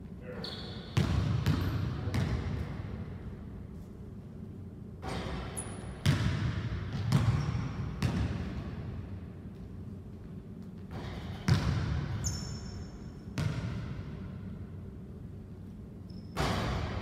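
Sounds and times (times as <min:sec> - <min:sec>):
basketball bouncing on wooden floor: 0:01.0 - 0:02.6, 0:06.0 - 0:08.8, 0:10.7 - 0:12.2, 0:13.4 - 0:14.0.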